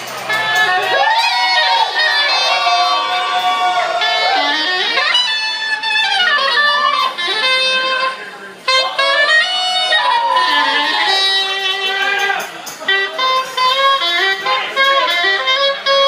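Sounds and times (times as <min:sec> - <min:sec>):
live band music: 0:00.0 - 0:16.0
reed horn melody with pitch bends: 0:00.0 - 0:16.0.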